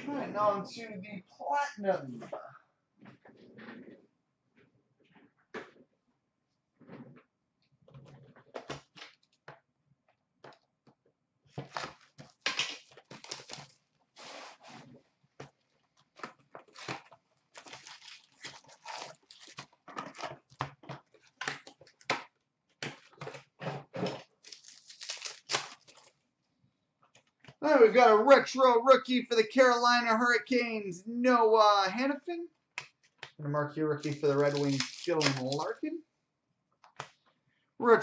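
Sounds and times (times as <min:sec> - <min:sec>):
plastic wrap crinkling and tearing: 0:11.6 - 0:14.9, 0:15.5 - 0:22.1, 0:24.2 - 0:26.3, 0:34.0 - 0:35.8.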